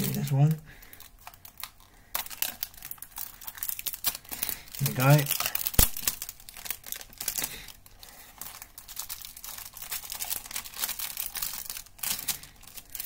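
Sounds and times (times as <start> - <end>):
plastic wrap crinkling: 0.0 - 13.0.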